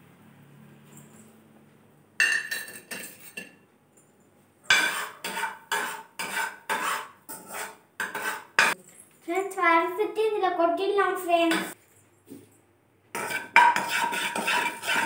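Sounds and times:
spoon knocking on metal pan: 13.2 - 14.6.

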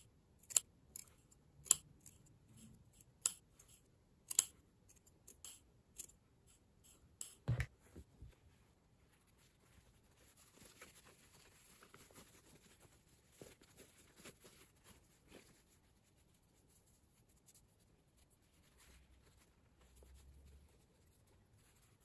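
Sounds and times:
cotton cloth rustling: 7.5 - 22.0.

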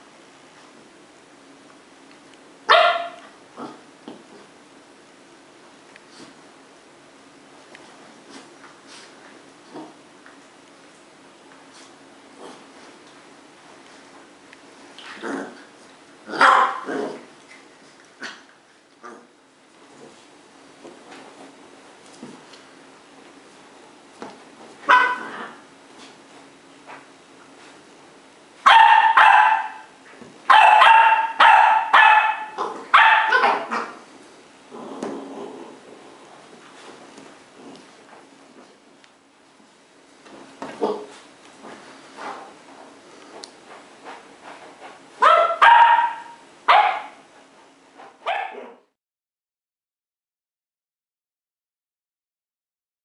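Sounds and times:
puppy barking: 2.7 - 3.3, 16.3 - 16.9, 24.9 - 25.6, 28.6 - 34.0, 45.2 - 47.2, 48.2 - 48.8.

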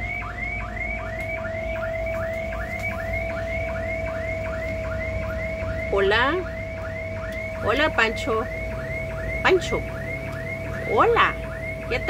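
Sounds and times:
distant car alarm chirping: 0.0 - 12.0
steady alarm tone: 0.0 - 12.0.

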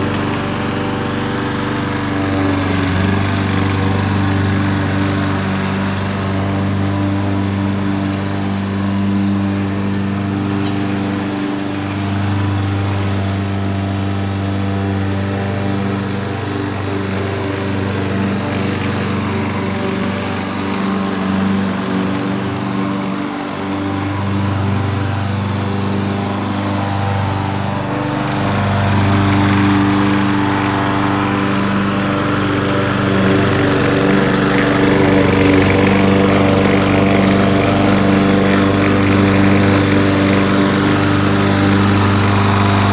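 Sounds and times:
lawn mower engine running: 0.0 - 42.9.

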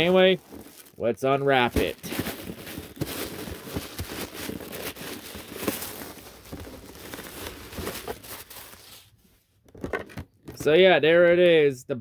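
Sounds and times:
plastic wrapping crinkling: 0.0 - 9.1.

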